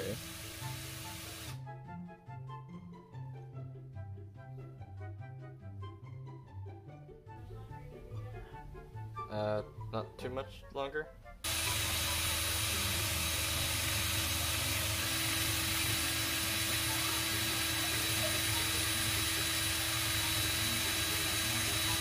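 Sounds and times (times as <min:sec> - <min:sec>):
cordless drill carving foam: 0:00.0 - 0:01.6, 0:11.4 - 0:22.0.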